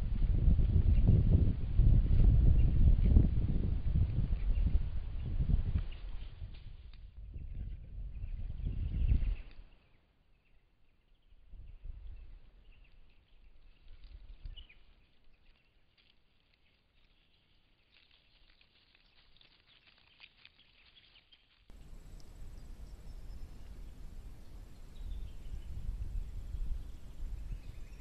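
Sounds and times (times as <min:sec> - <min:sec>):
steady low hiss: 0:11.1 - 0:28.0.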